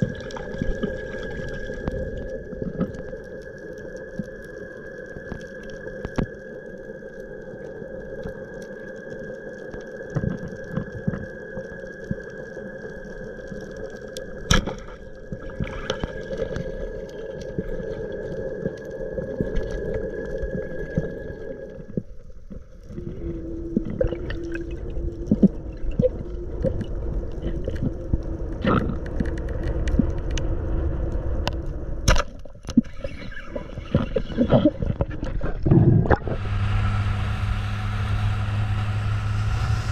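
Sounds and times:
underwater water noise: 0:00.0 - 0:39.9
steady humming tones: 0:33.6 - 0:39.9.

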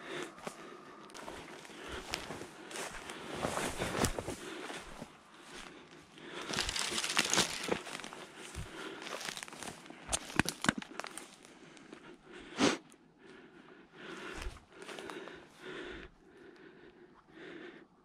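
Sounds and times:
footsteps crunching through brush: 0:00.2 - 0:11.5
branches rustling: 0:00.4 - 0:11.7
twigs snapping: 0:06.4 - 0:11.5.

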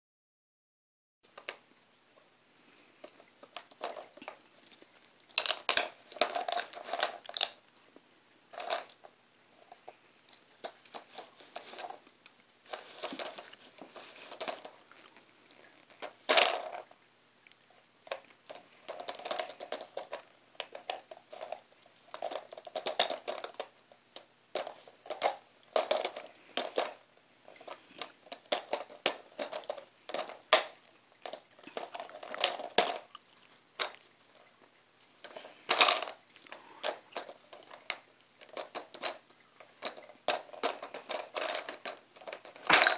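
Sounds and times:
plastic toy clacking and scraping: 0:03.0 - 0:07.6, 0:08.5 - 0:10.0, 0:10.6 - 0:14.8, 0:15.7 - 0:17.0, 0:18.0 - 0:33.1, 0:33.8 - 0:34.5, 0:35.1 - 0:42.9.

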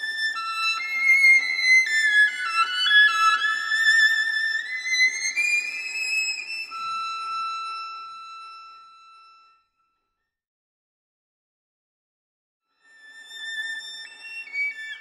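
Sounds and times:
violin melody: 0:00.0 - 0:09.5.

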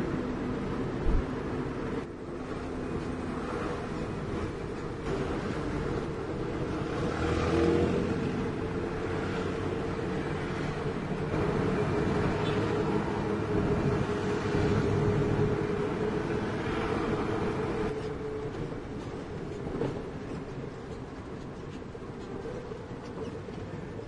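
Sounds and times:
road noise: 0:00.0 - 0:24.0
diesel truck engine running: 0:09.8 - 0:17.9.

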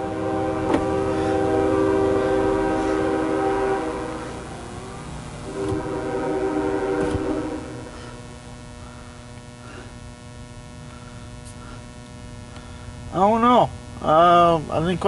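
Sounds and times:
locomotive air horn blasts: 0:00.0 - 0:08.4.

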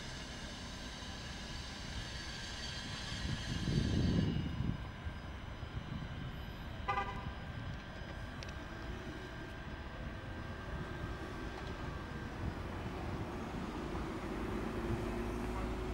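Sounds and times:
tram low rumble: 0:00.0 - 0:15.9
tram warning horn toot: 0:06.8 - 0:07.6.

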